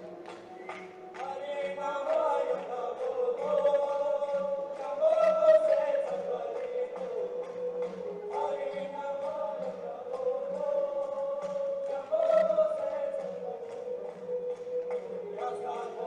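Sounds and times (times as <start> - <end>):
hand clapping: 0.0 - 16.0
men singing in unison: 0.0 - 16.0.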